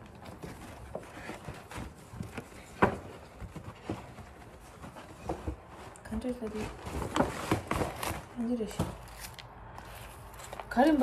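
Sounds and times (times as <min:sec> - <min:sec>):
paper bag rustling: 0:00.0 - 0:11.0.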